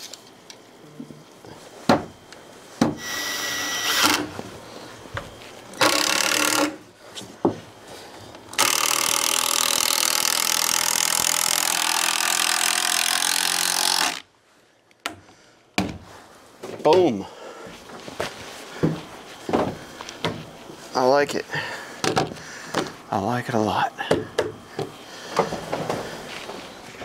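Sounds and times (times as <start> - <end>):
cordless drill driving a screw: 3.0 - 4.2, 5.8 - 6.8, 8.5 - 14.2.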